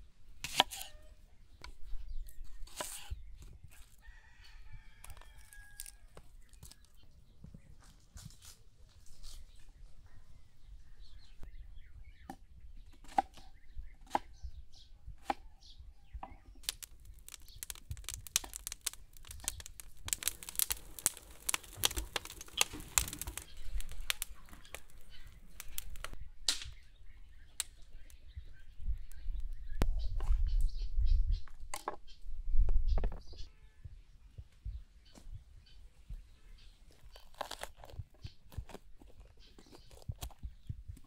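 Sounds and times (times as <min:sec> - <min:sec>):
crinkling handling noise: 0:16.6 - 0:26.2, 0:36.9 - 0:41.0.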